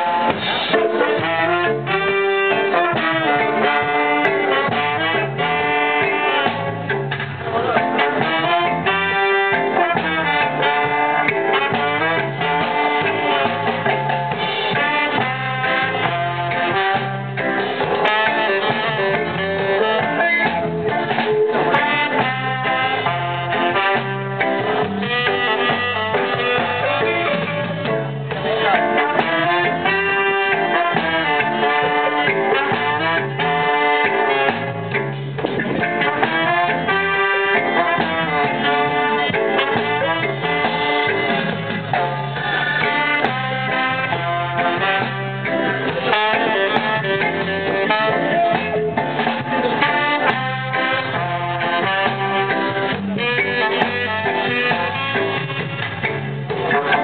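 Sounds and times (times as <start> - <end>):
horn section playing chords: 0.0 - 57.0
live band playing: 0.0 - 57.0.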